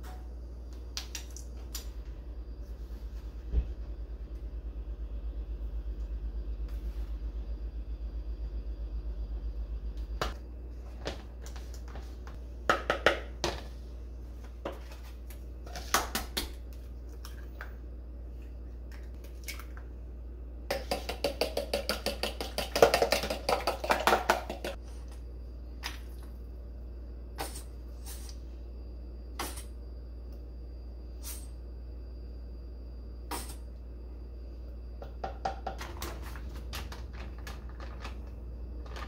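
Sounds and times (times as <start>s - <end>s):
steady low hum: 0.0s - 39.0s
fork beating eggs in plastic tub: 20.7s - 24.8s
jars knocking on countertop: 20.7s - 24.8s, 35.0s - 35.9s.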